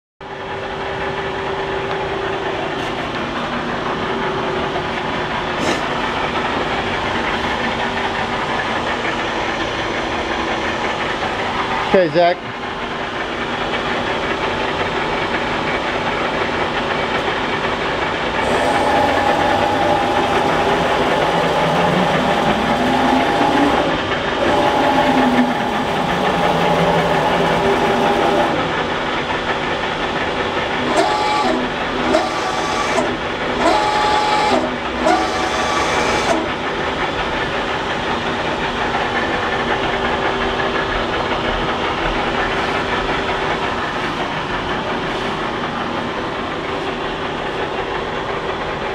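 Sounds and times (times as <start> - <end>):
lathe running with hiss: 0.6 - 48.9
motors whining: 18.3 - 29.1, 30.6 - 36.8
short stepped machine tones: 18.4 - 28.6, 30.8 - 36.5.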